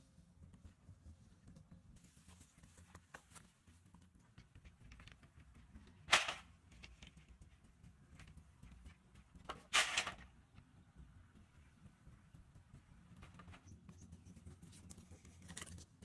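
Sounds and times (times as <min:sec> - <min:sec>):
bamboo poles clattering: 0:04.6 - 0:07.3, 0:08.8 - 0:10.4.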